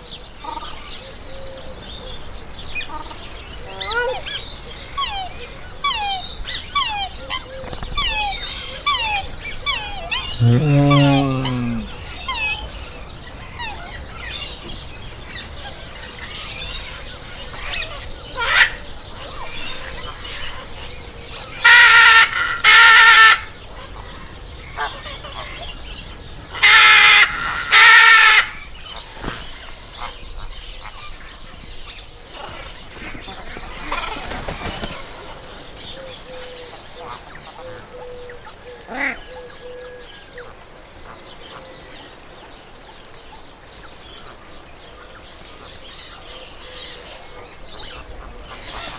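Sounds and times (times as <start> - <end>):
macaw squawking: 46.7 - 48.9.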